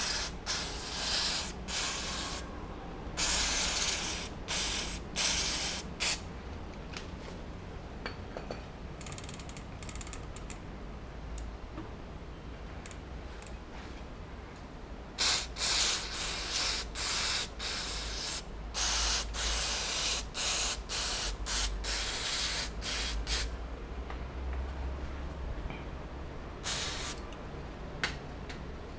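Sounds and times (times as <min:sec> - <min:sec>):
aerosol spray hissing: 0:00.0 - 0:02.5, 0:03.2 - 0:06.2, 0:15.2 - 0:23.5, 0:26.6 - 0:27.2.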